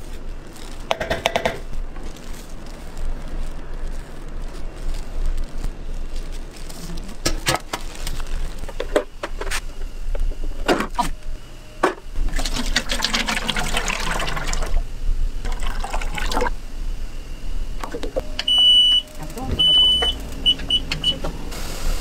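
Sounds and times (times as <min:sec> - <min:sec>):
oil pouring and splashing: 0:12.2 - 0:14.8, 0:15.4 - 0:16.5.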